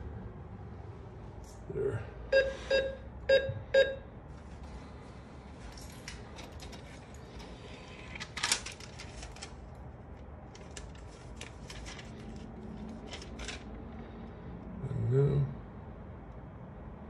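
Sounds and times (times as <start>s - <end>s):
steady low hum: 0.0s - 17.0s
atm mechanism clicking and rattling: 5.7s - 14.0s.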